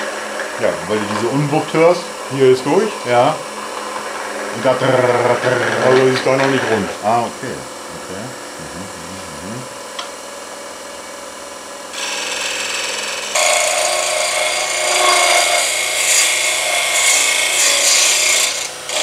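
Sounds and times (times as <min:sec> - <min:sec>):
wood lathe humming: 0:00.0 - 0:09.7, 0:11.9 - 0:19.0
chisel scraping spinning wood: 0:03.8 - 0:07.1, 0:12.0 - 0:19.0.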